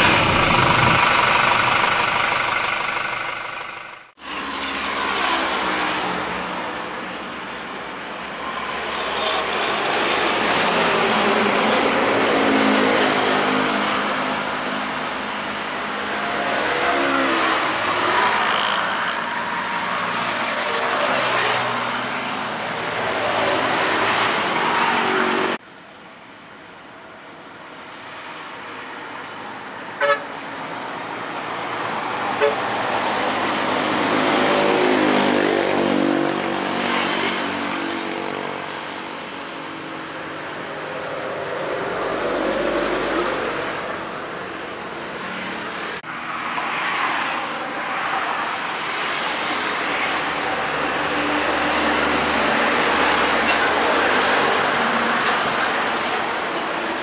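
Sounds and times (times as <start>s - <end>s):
motorcycles passing: 0.0s - 3.9s
heavy trucks passing: 0.0s - 7.6s.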